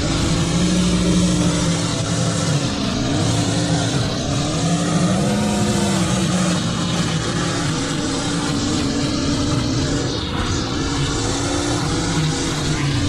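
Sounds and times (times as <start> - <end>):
small petrol engine running: 0.0 - 10.4.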